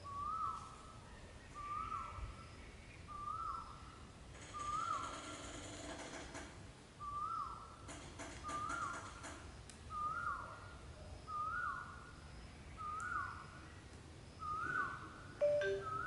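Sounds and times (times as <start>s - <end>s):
bird whistled call: 9.9s - 10.5s, 14.4s - 16.0s.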